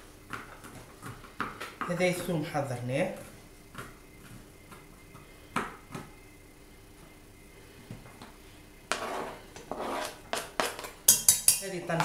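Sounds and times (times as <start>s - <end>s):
cutting board scraping against pot: 8.9s - 10.9s.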